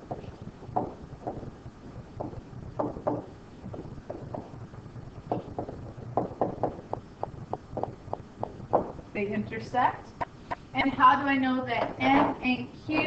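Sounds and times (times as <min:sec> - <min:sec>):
stylus tapping on tablet screen: 0:00.0 - 0:01.5, 0:02.1 - 0:09.0
low steady hum: 0:00.0 - 0:13.0.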